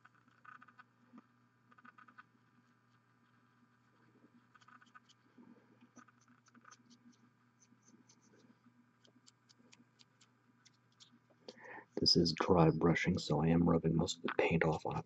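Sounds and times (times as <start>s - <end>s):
paintbrush scratching plastic: 0.0s - 11.2s
low room hum: 0.0s - 15.0s.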